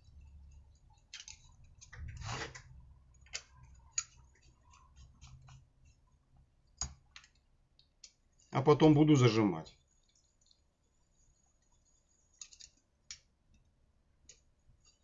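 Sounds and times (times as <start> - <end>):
metal scrape: 2.1 - 2.7.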